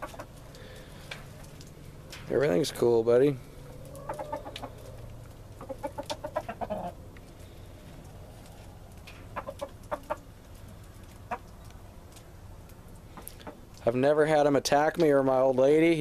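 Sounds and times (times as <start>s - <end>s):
rooster clucking: 0.0s - 0.4s, 3.6s - 7.1s, 9.2s - 10.4s, 11.2s - 11.6s.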